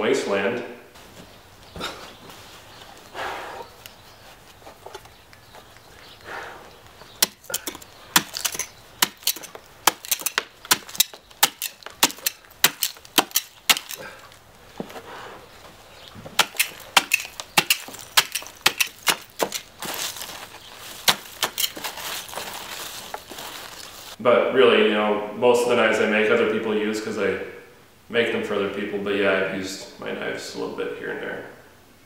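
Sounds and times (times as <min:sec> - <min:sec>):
knife crunching into snow: 0:07.2 - 0:14.2, 0:16.4 - 0:24.2
knife scraping: 0:16.4 - 0:24.1.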